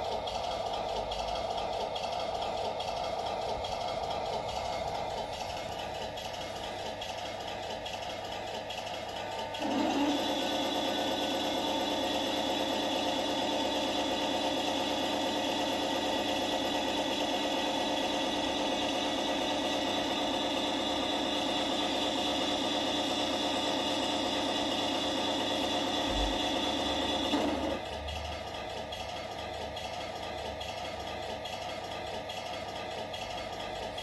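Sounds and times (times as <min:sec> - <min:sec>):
turret motor and gearbox whirring: 0:00.2 - 0:34.0
engine idle hum: 0:25.9 - 0:27.0.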